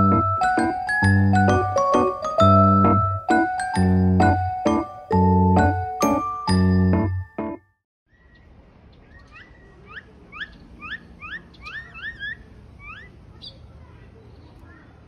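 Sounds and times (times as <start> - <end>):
faint outdoor background: 0.0 - 15.0
bird chirping: 8.1 - 14.6.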